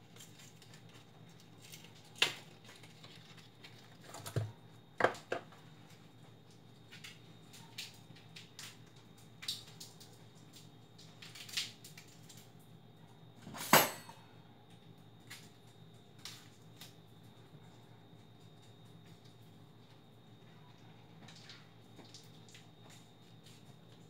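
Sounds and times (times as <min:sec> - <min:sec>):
dishes and utensils clattering: 0:13.5 - 0:14.2.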